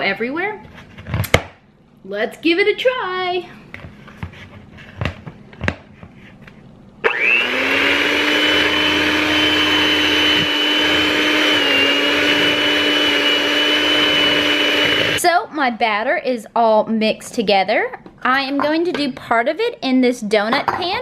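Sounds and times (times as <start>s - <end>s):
electric hand mixer whining: 7.0s - 15.2s.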